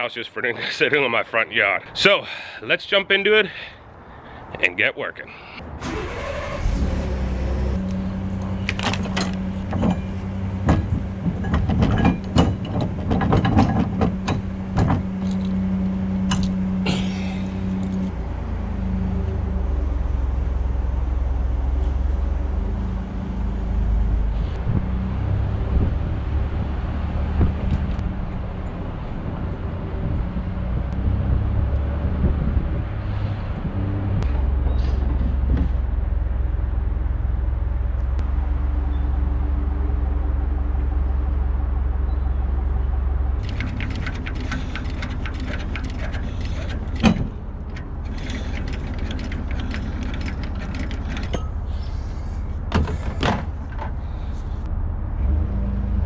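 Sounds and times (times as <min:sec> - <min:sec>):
truck engine running: 0:05.8 - 0:31.0, 0:33.8 - 0:56.0
metallic rattling and clinking: 0:08.6 - 0:18.1, 0:43.4 - 0:51.8.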